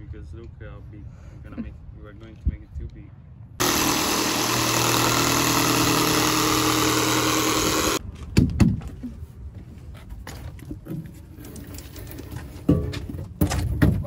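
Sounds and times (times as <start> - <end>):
jigsaw cutting plywood: 3.6 - 8.0.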